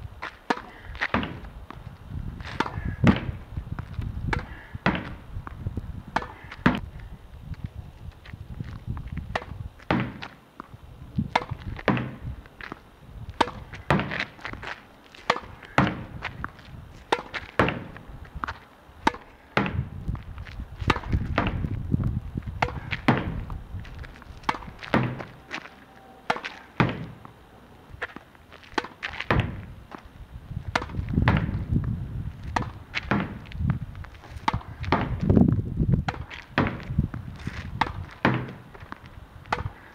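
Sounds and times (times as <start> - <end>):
racket striking tennis ball: 0.2 - 1.8, 2.4 - 3.4, 4.3 - 5.2, 6.1 - 6.8, 9.3 - 12.8, 13.4 - 19.9, 20.8 - 21.7, 22.6 - 27.4, 28.0 - 30.0, 30.7 - 31.7, 32.5 - 33.5, 34.3 - 35.3, 36.0 - 39.9
ball thudding against wall: 0.5 - 1.5, 4.3 - 5.2, 9.3 - 10.3, 11.3 - 12.2, 13.4 - 14.6, 15.3 - 16.1, 17.1 - 18.0, 19.0 - 19.9, 20.9 - 21.7, 22.6 - 23.5, 24.4 - 25.4, 26.3 - 27.3, 28.8 - 29.7, 30.7 - 31.6, 32.5 - 33.4, 34.4 - 35.3, 36.0 - 37.0, 37.8 - 38.6.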